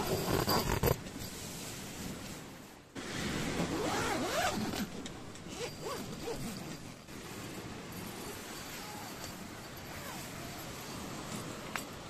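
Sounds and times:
zipper being pulled: 0.0s - 1.0s, 3.6s - 4.9s, 5.5s - 7.0s, 9.9s - 10.6s.

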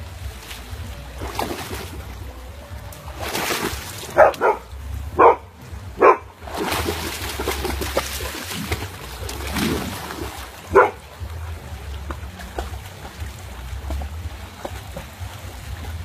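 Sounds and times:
dog splashing in water: 0.4s - 2.3s, 3.0s - 4.6s, 6.0s - 16.0s
dog barking: 4.2s - 6.3s, 10.7s - 11.0s.

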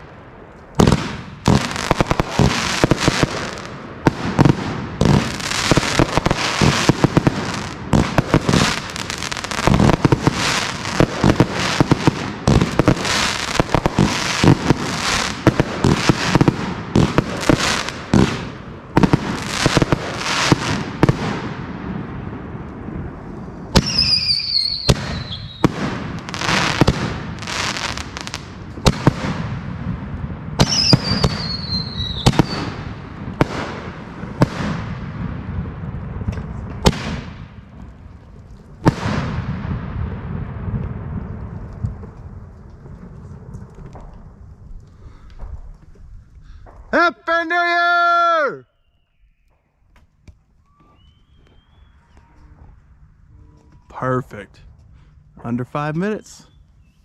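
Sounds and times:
fireworks bangs and crackling: 0.0s - 48.5s
falling firework whistle: 23.7s - 26.9s, 30.6s - 32.8s, 50.6s - 52.4s.

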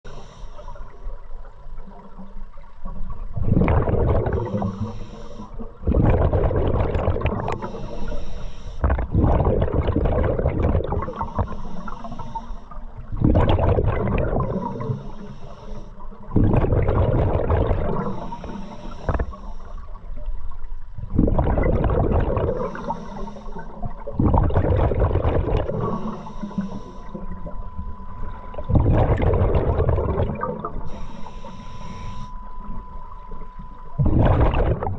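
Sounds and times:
regulator inhale hiss: 0.1s - 1.1s, 4.4s - 5.8s, 7.4s - 8.9s, 11.0s - 13.0s, 14.4s - 16.3s, 17.8s - 20.2s, 22.5s - 24.1s, 25.6s - 28.6s, 30.8s - 33.2s
exhaled bubbles rushing: 3.1s - 4.9s, 5.6s - 7.7s, 8.8s - 11.3s, 13.0s - 14.9s, 16.3s - 18.2s, 21.0s - 22.9s, 23.6s - 26.2s, 27.1s - 30.9s, 34.0s - 34.9s.

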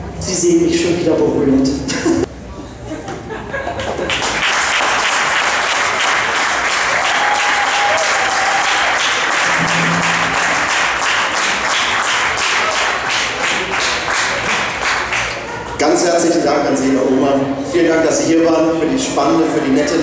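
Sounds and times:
audience applauding: 4.1s - 15.4s.

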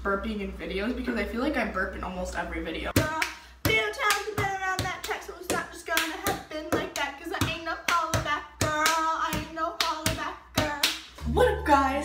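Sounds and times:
rhythmic hand claps: 2.9s - 11.2s
young woman singing: 2.9s - 11.8s.

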